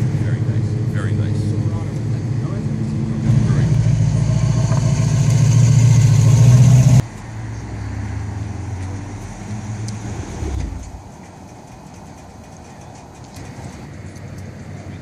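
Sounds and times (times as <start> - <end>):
car engine idling: 0.0 - 14.2.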